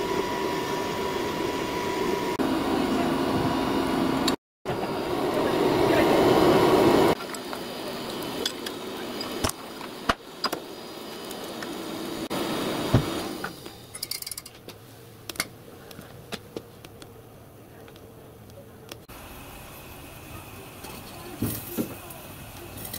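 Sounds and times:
steam hissing: 4.7s - 15.1s, 19.0s - 22.9s.

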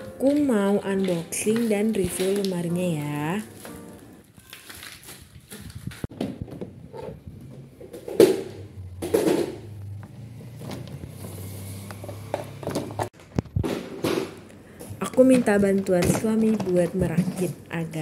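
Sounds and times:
plastic panels knocking and clattering: 6.1s - 9.7s, 12.3s - 18.0s.

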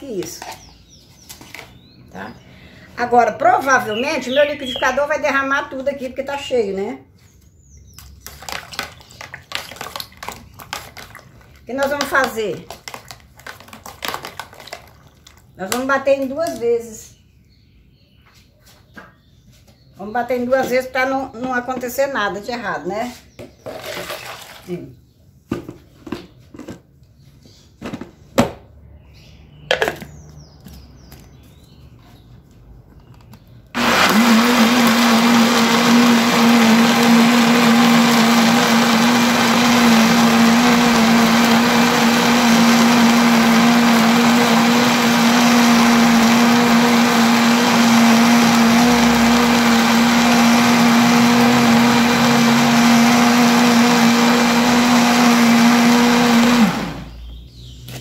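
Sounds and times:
kitchen blender running: 33.8s - 57.2s.

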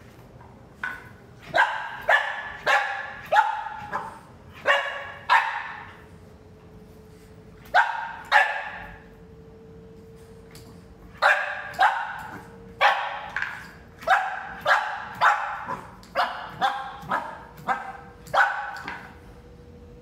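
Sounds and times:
puppy barking: 0.8s - 6.0s, 7.7s - 9.0s, 11.2s - 19.1s.

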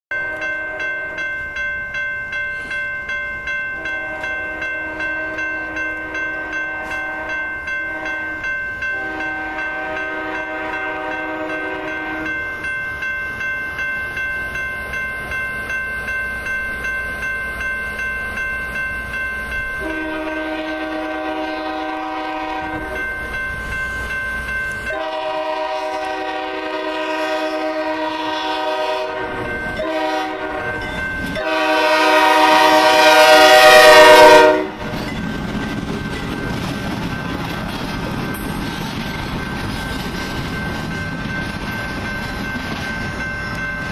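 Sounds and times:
crossing bell ringing: 0.1s - 43.9s
train air horn blasts: 3.8s - 12.4s, 19.8s - 23.0s, 24.9s - 30.8s, 31.4s - 34.9s.

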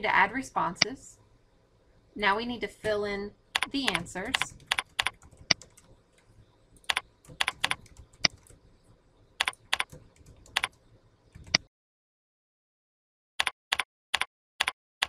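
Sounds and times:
keyboard keystroke clicks: 6.8s - 8.6s.

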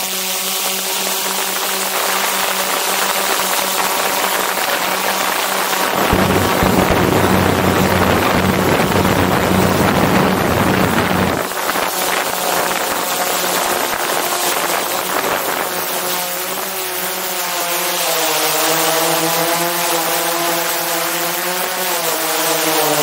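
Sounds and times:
drone propellers buzzing: 0.0s - 23.0s
broad rushing noise: 0.8s - 17.3s.

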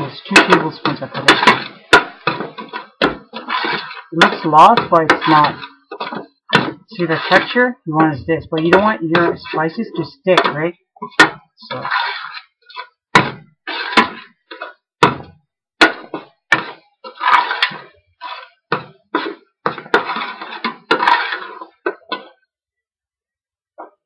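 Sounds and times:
spoon scraping pot bottom: 0.1s - 7.6s, 8.5s - 12.9s, 13.7s - 14.7s, 16.6s - 18.6s, 19.2s - 22.3s.

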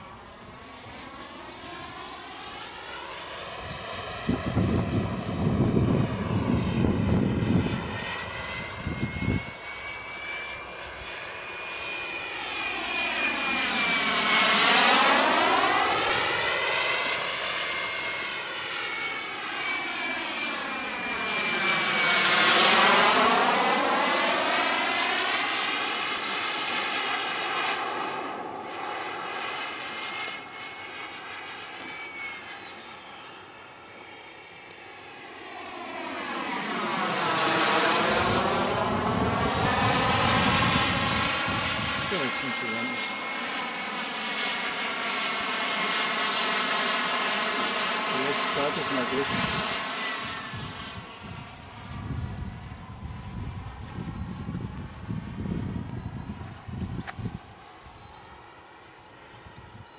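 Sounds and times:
model jet turbine whistling: 28.8s - 44.6s.

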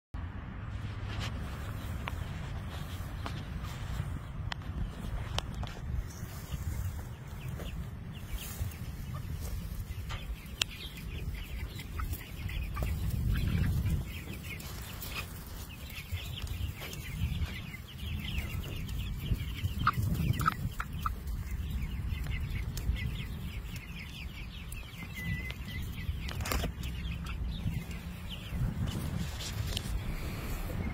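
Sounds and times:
chicks clucking and cheeping: 0.4s - 30.9s.

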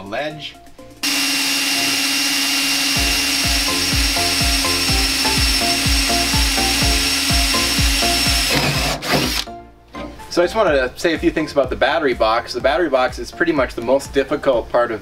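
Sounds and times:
power drill boring through metal: 1.0s - 9.5s
background music with thudding beat: 1.9s - 15.0s.

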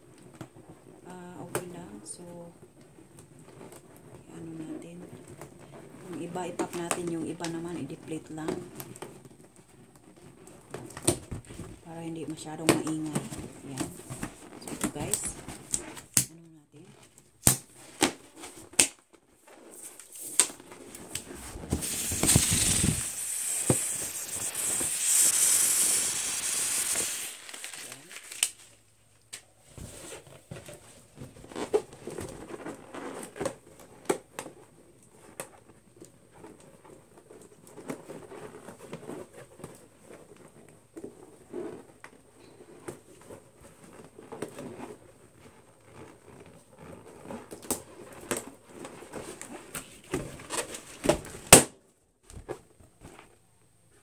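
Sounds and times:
balloons rubbing and squeaking: 2.2s - 16.2s, 16.8s - 51.1s
air hissing out of a balloon: 21.7s - 28.4s.

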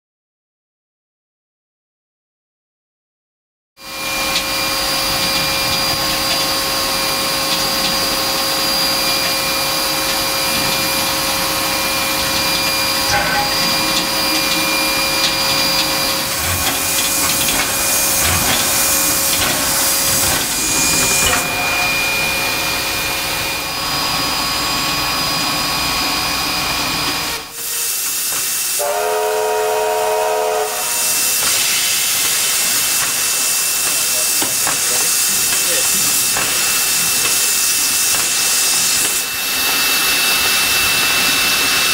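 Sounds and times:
steam locomotive whistle blast: 3.8s - 23.8s, 26.2s - 34.6s
steam hiss: 3.9s - 41.9s.

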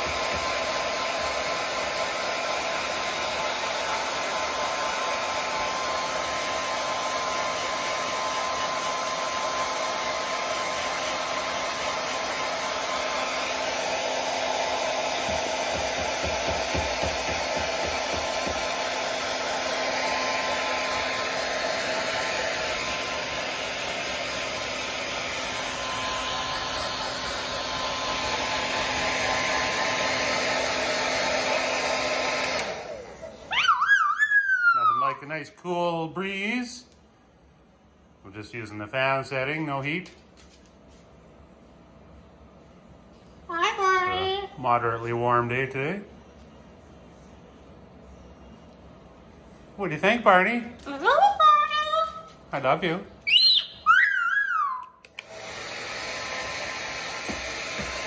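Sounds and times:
hair dryer blowing: 0.0s - 36.8s, 52.6s - 58.0s.

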